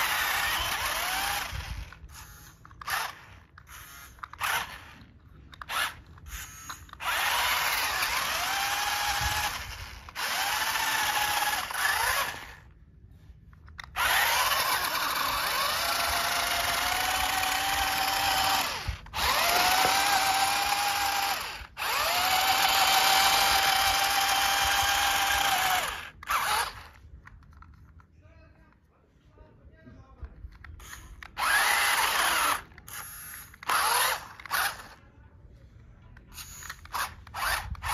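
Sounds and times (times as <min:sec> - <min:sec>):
electric motor whining: 0:00.0 - 0:12.7, 0:13.7 - 0:27.0, 0:30.8 - 0:35.0, 0:36.4 - 0:37.9.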